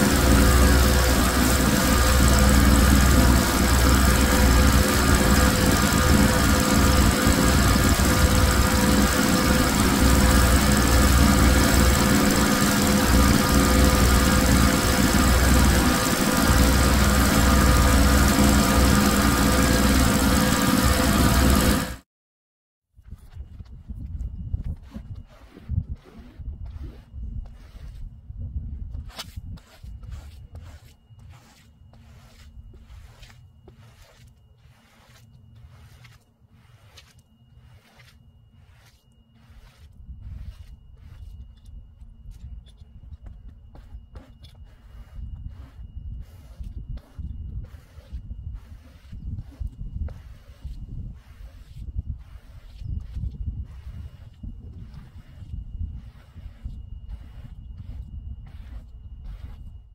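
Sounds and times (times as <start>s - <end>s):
low rumble: 0.0s - 22.0s
pressure washer motor hum: 0.0s - 22.0s
scrub brush swishing on wet rug: 24.9s - 28.1s, 29.6s - 41.2s, 44.8s - 59.6s.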